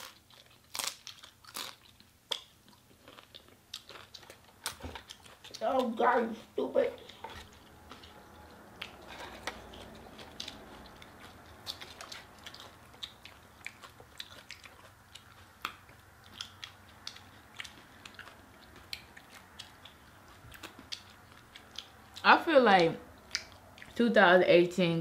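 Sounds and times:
chewing crunchy food: 0.0s - 6.4s, 7.0s - 22.3s, 23.1s - 24.0s.

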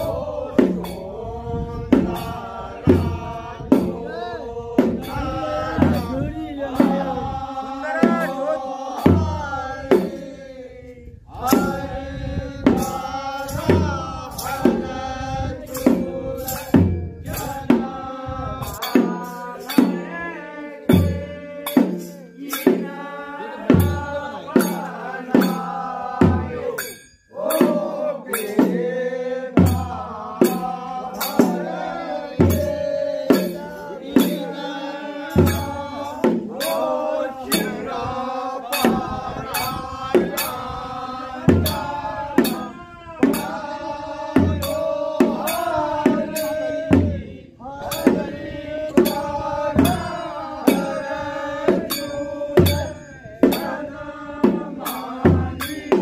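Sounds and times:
drum strikes: 0.0s - 4.1s, 4.8s - 10.3s, 11.4s - 12.0s, 12.6s - 56.0s
men singing in chorus: 0.0s - 56.0s
cymbal clashes: 35.3s - 37.9s.

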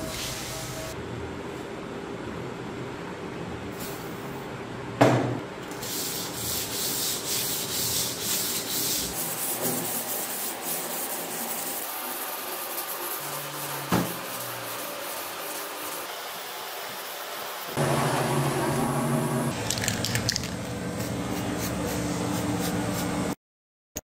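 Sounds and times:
sandpaper rubbing on metal blade: 5.8s - 16.1s.

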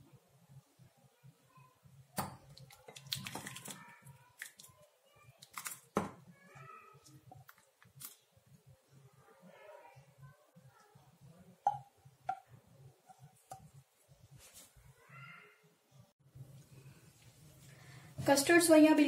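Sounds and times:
thick liquid pouring: 2.4s - 4.8s.

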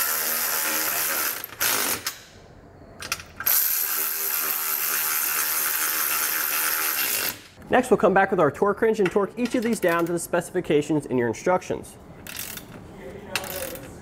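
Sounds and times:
electric ratchet whirring: 0.0s - 2.2s, 3.4s - 7.6s.

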